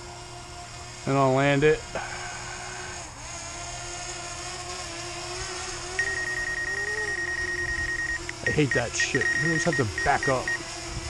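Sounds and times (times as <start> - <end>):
drone propellers humming: 0.0 - 11.0
rapid high beeping: 6.0 - 10.6.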